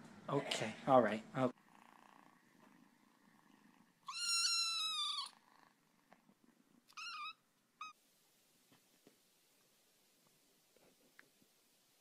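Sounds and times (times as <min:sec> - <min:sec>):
cat purring: 0:01.5 - 0:04.1, 0:05.2 - 0:06.9
cat meowing: 0:04.0 - 0:05.4, 0:06.9 - 0:08.0.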